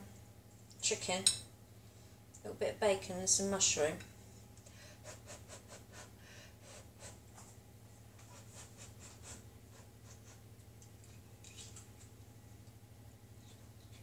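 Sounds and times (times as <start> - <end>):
low steady hum: 0.0 - 14.0
person breathing: 4.4 - 5.2, 5.9 - 7.2.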